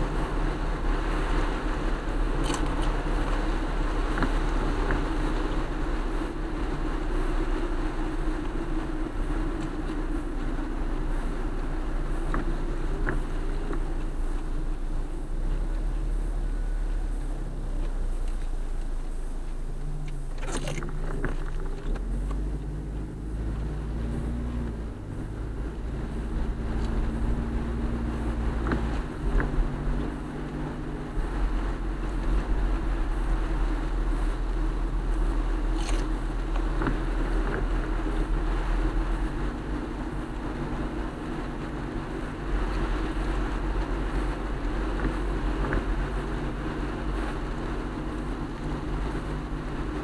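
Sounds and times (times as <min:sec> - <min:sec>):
rushing hiss of wet road: 0:00.0 - 0:20.4, 0:22.0 - 0:50.0
car tyre and engine rumble: 0:00.0 - 0:50.0
windshield wiper swishing: 0:00.0 - 0:50.0
faint ticks: 0:12.3 - 0:14.5, 0:17.8 - 0:23.7.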